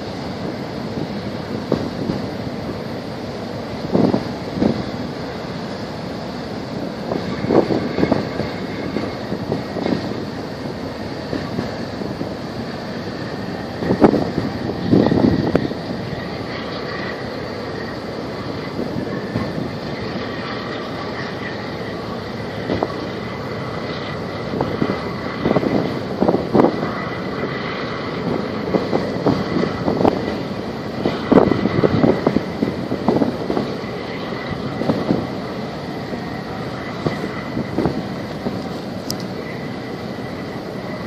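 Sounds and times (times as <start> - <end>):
boat engine drone: 0.0 - 41.0.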